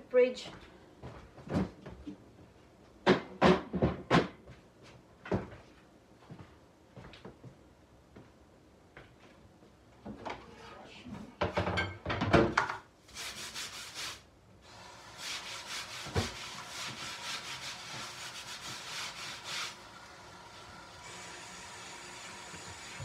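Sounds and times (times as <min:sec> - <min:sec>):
knock: 0:03.0 - 0:04.4
dishes and utensils clattering: 0:11.4 - 0:12.8.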